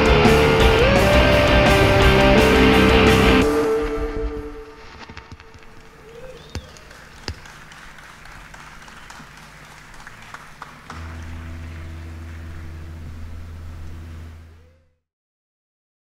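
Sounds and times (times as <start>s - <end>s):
steady low drone: 0.0s - 15.0s
crowd applauding and cheering: 5.2s - 13.7s.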